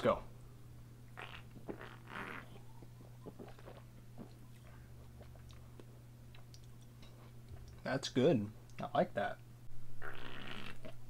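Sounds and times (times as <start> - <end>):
person drinking and swallowing: 3.2 - 4.0.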